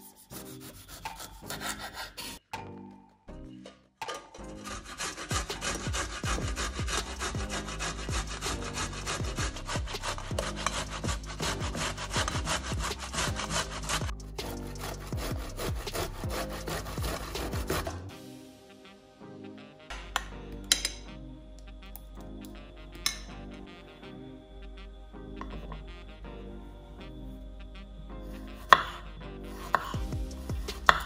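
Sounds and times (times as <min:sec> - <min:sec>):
tomato scraping on box grater: 0:04.5 - 0:18.0.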